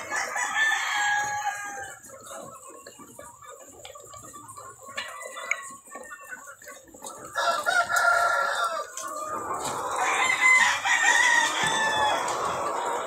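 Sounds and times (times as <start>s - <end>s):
chickens clucking and calling: 0.0s - 13.0s.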